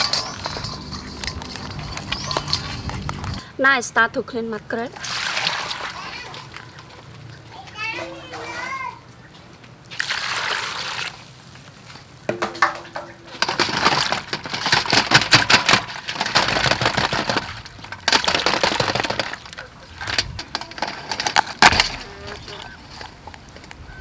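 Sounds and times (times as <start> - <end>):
crab shells clicking and knocking: 0.0 - 3.5, 12.3 - 23.8
water splashing in bowl: 4.9 - 7.4, 9.9 - 11.3
water rushing: 5.0 - 6.9.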